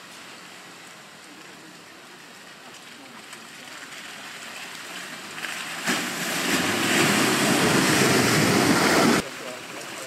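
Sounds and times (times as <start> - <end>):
tyres splashing mud and water: 0.0 - 10.0
vehicle driving through mud: 3.4 - 9.2.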